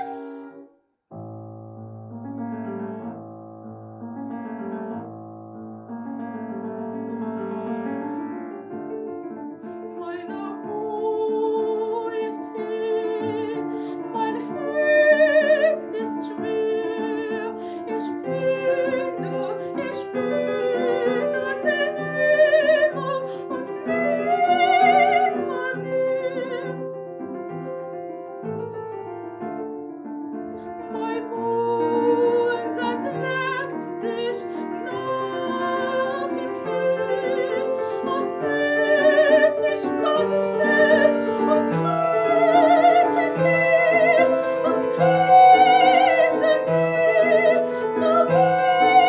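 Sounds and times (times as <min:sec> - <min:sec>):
soprano singing operatic art song: 0:00.0 - 0:00.7, 0:09.6 - 0:29.1, 0:30.4 - 0:49.0
grand piano: 0:00.0 - 0:49.0.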